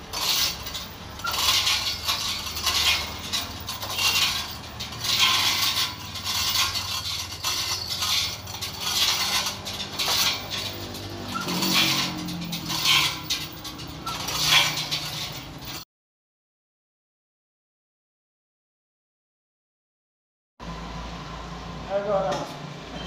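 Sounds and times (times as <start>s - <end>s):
hoist chain links clinking: 0.0s - 15.8s.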